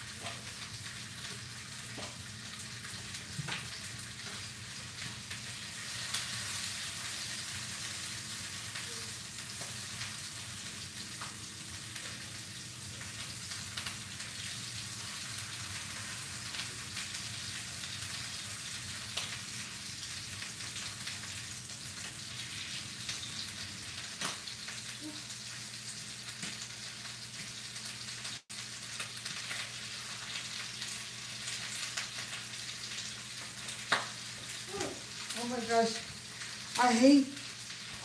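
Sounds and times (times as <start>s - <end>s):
food sizzling in a skillet: 0.0s - 38.0s.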